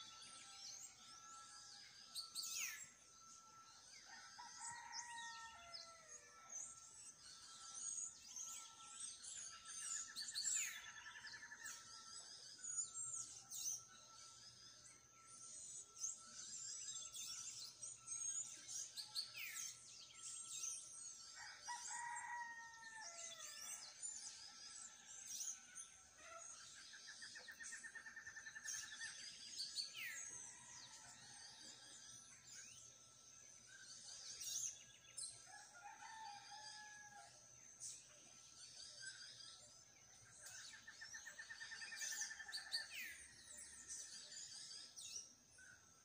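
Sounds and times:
small birds chirping and singing: 0:00.0 - 0:46.0
rooster crowing: 0:21.4 - 0:23.5.

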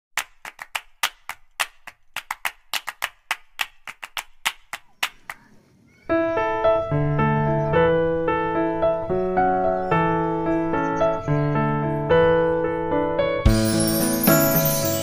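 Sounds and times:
piano music: 0:06.1 - 0:15.0.

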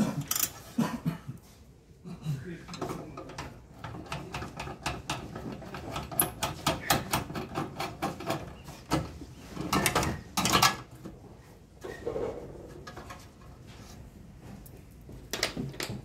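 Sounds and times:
metal parts clicking and rattling: 0:00.1 - 0:00.7.

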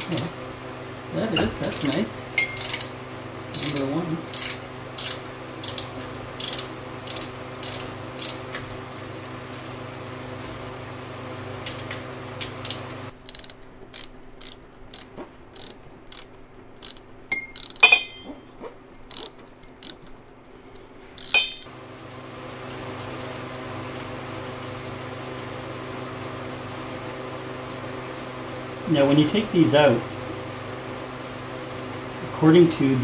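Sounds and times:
ratchet wrench clicking: 0:02.6 - 0:08.4, 0:12.6 - 0:18.0, 0:19.1 - 0:20.0, 0:21.2 - 0:21.7
metallic clatter: 0:12.6 - 0:21.7.

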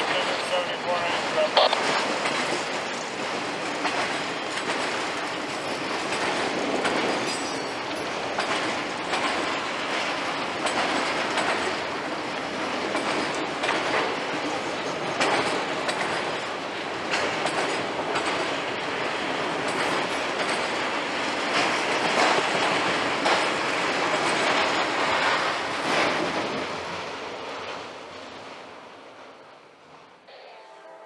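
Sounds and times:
freight train rolling past: 0:00.0 - 0:31.0
wheels clicking over rail joints: 0:01.8 - 0:26.6.

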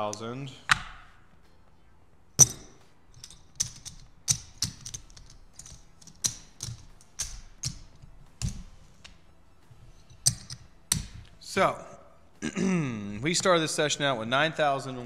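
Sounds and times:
poker chips clacking: 0:02.4 - 0:08.6, 0:10.1 - 0:11.3.

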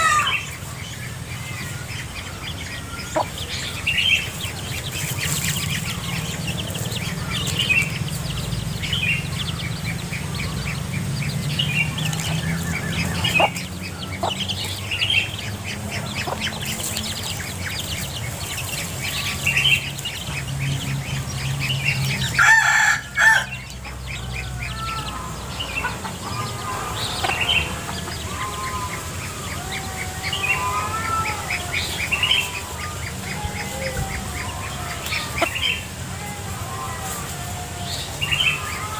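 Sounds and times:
chicks cheeping: 0:00.0 - 0:38.9
hen clucking: 0:01.5 - 0:11.1, 0:11.8 - 0:21.3.

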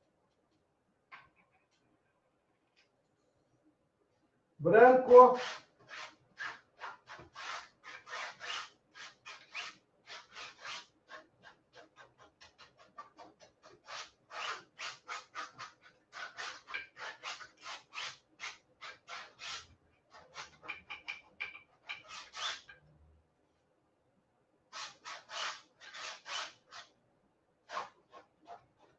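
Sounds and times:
palette knife scraping paint on canvas: 0:05.0 - 0:22.8, 0:24.7 - 0:27.0, 0:27.6 - 0:28.9.

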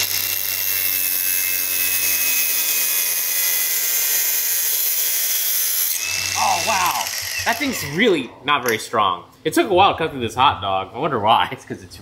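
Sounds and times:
angle grinder high whine: 0:00.0 - 0:08.3.

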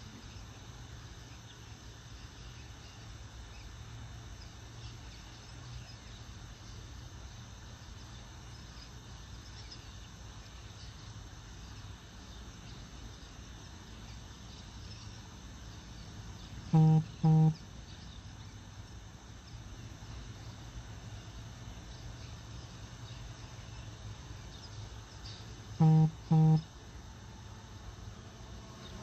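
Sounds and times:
faint insect chirping: 0:00.0 - 0:29.0
low hum: 0:16.7 - 0:18.0, 0:25.8 - 0:26.9
short flat-toned honks: 0:16.8 - 0:17.6, 0:25.8 - 0:26.7.

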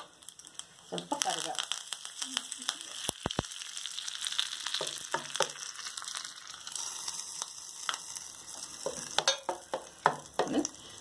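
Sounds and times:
hot oil sizzling: 0:00.0 - 0:11.0
spoon clicking on pans: 0:08.8 - 0:10.6.

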